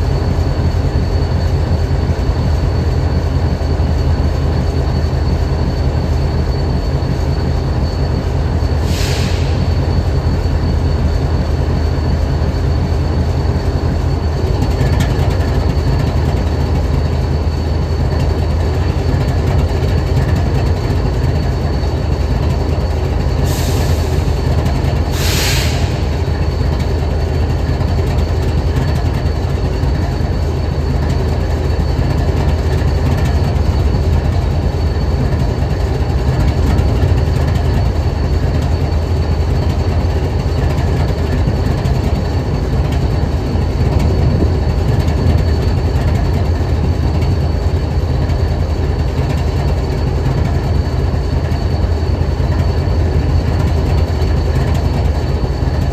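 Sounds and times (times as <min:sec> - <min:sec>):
locomotive engine idling: 0:00.0 - 0:55.9
short hisses: 0:08.8 - 0:09.6, 0:25.2 - 0:26.0.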